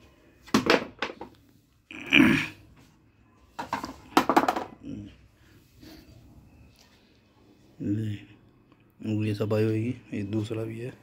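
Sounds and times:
plastic part knocking on concrete: 3.6s - 4.8s.

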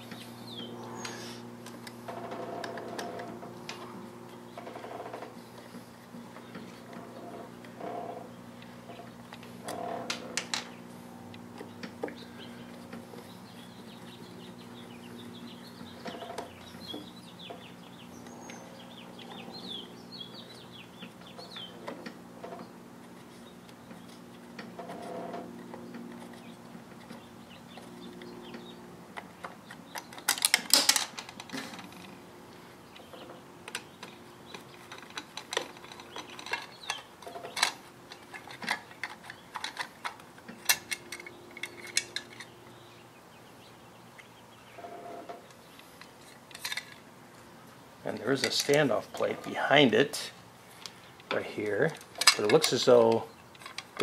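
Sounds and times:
low hum: 0.0s - 52.4s
bird chirps: 11.6s - 21.8s.

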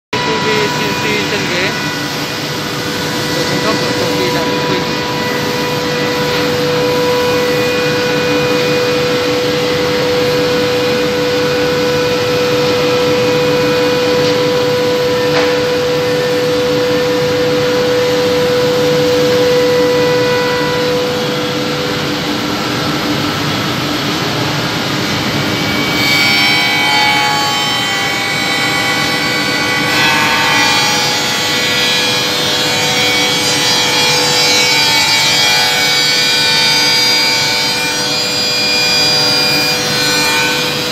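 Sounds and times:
sanding machine hum: 0.2s - 40.9s.

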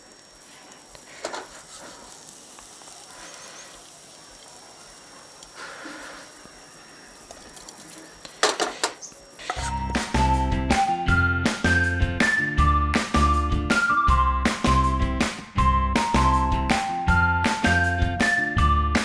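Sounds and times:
faint steady hiss: 0.0s - 9.7s.

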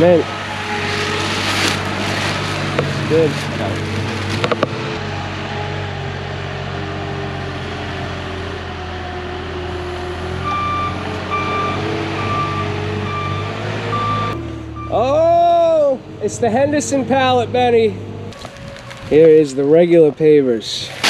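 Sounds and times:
truck engine running: 0.0s - 20.4s
reversing alarm beeps: 10.4s - 15.0s.

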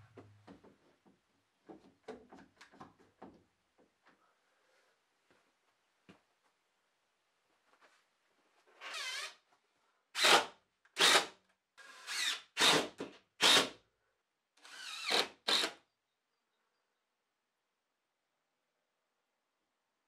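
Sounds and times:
cordless drill bursts: 8.9s - 9.3s, 10.2s - 13.8s, 14.6s - 15.8s.

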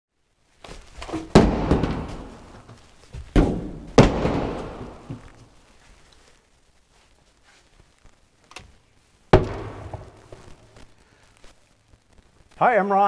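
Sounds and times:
heavy slams: 1.2s - 2.5s, 3.3s - 5.2s, 9.3s - 10.2s.

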